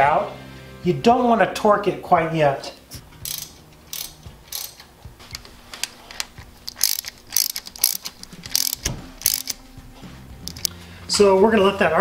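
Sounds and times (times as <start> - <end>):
socket ratchet clicking: 3.2 - 9.6, 10.4 - 10.7.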